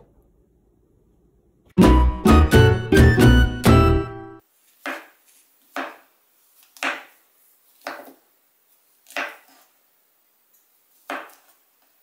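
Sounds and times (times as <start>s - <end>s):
knife chopping on cutting board: 4.8s - 6.1s, 6.7s - 7.2s, 7.8s - 8.2s, 9.0s - 9.6s, 11.0s - 11.6s.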